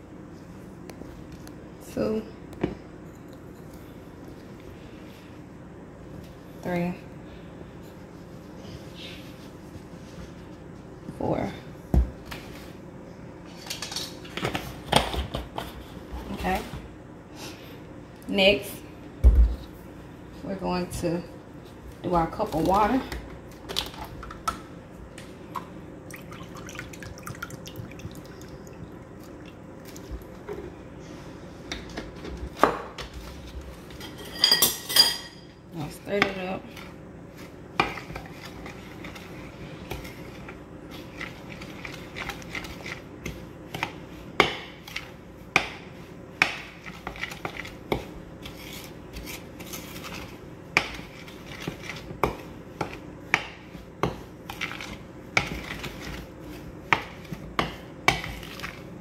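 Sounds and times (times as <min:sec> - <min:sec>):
faint steady hum: 0:00.0 - 0:59.0
dishes and utensils clinking: 0:34.0 - 0:35.5.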